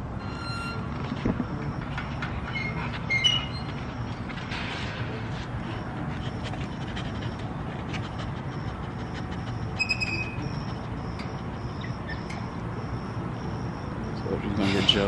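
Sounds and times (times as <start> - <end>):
high squeak: 0.2 - 4.1, 9.6 - 12.5.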